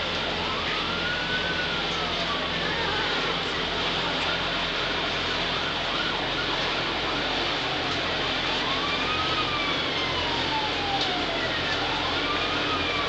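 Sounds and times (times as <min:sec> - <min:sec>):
faint siren wailing: 0:00.0 - 0:13.0.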